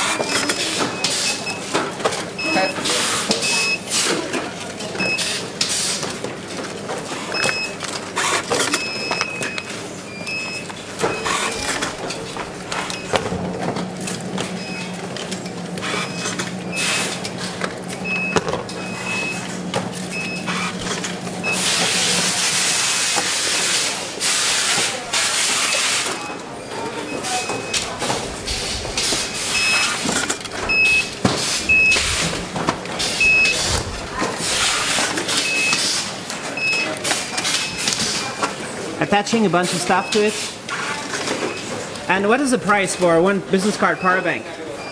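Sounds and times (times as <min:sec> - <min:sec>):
factory background noise: 0:00.0 - 0:44.9
low hum: 0:27.7 - 0:35.0
short high electronic beeps: 0:30.7 - 0:32.3, 0:33.1 - 0:33.8.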